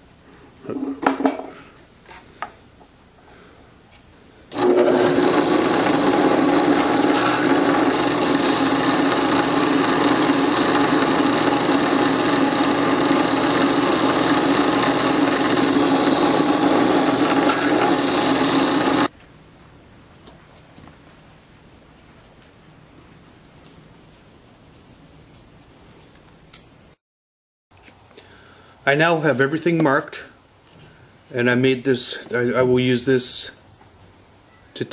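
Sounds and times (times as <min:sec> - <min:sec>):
drill press running: 0:04.5 - 0:19.1.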